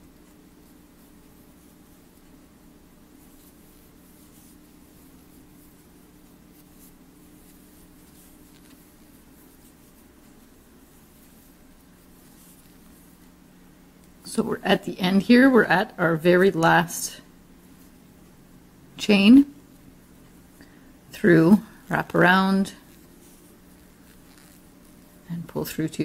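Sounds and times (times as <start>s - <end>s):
yarn rustling on crochet hook: 0.0s - 13.5s, 21.1s - 26.0s
steady low hum: 0.0s - 26.0s.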